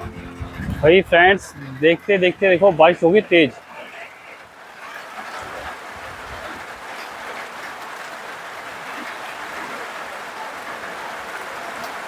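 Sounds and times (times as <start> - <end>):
rain falling: 0.0 - 12.0
raindrop ticks: 3.5 - 12.0.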